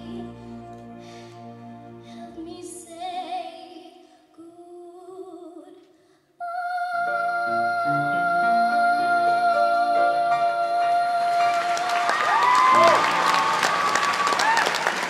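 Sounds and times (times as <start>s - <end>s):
sustained musical accompaniment: 0.0s - 3.3s
girl singing a slow ballad: 2.0s - 12.1s.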